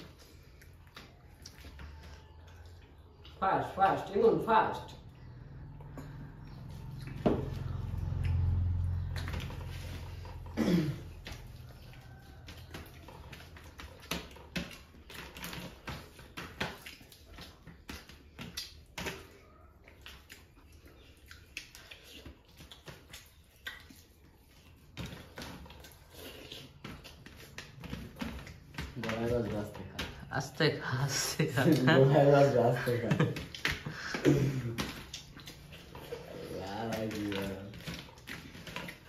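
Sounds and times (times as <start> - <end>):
wet chewing and lip smacking: 0.0 - 3.4, 5.0 - 28.9, 34.8 - 37.1.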